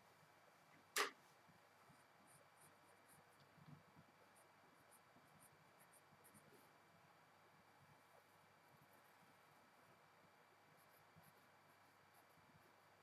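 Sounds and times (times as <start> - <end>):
sharp click: 0.9 - 1.2
pencil scratching on paper: 1.9 - 6.9, 7.9 - 13.0.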